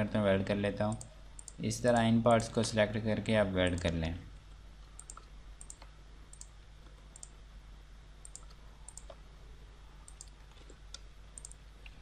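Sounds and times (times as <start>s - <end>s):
low electrical hum: 0.0s - 12.0s
computer mouse clicks: 0.9s - 2.1s, 5.0s - 7.4s, 8.2s - 9.2s, 10.0s - 12.0s.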